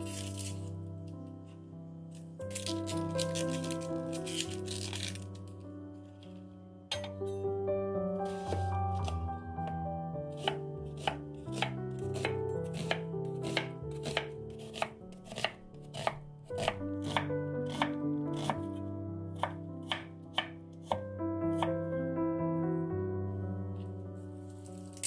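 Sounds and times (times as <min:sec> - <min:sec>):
soft background music: 0:00.0 - 0:25.0
knife chopping on wooden board: 0:10.3 - 0:18.6, 0:19.4 - 0:21.7.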